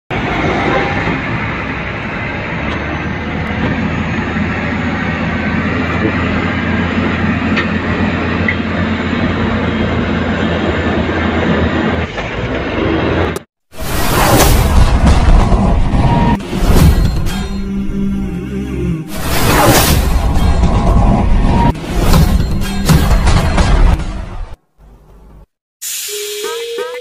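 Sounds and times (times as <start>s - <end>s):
truck diesel engine rumbling: 0.1s - 13.4s.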